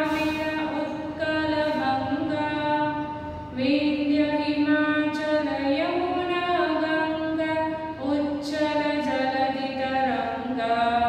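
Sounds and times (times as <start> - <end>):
woman singing unaccompanied: 0.0 - 11.0.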